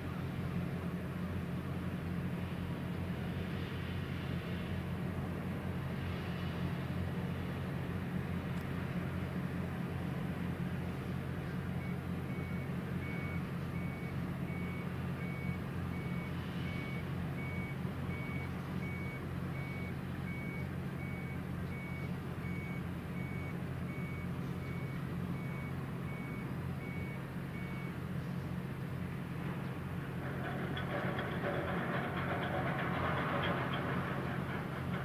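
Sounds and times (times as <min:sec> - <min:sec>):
reversing alarm beeping: 0:11.8 - 0:28.0
low machinery drone: 0:21.0 - 0:35.0.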